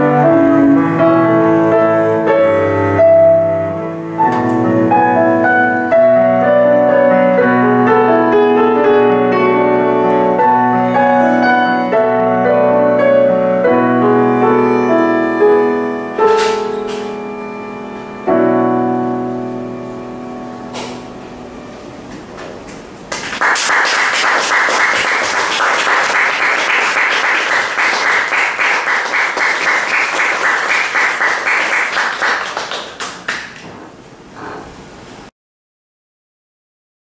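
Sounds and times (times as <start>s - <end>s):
piano and cello chord: 0.0s - 22.5s
audience applause: 23.1s - 33.7s.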